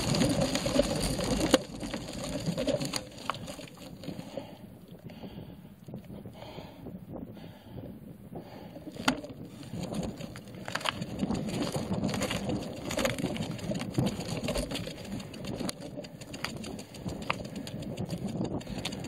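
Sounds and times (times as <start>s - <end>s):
bike tyres crunching on gravel: 0.0s - 4.5s, 9.0s - 19.0s
bike clicks and rattles: 0.0s - 5.2s, 8.8s - 19.0s.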